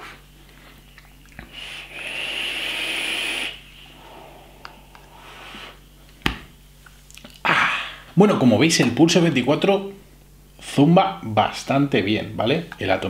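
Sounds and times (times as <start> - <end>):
breathy exhale: 1.4 - 5.9
hissing draw of air: 1.4 - 5.9.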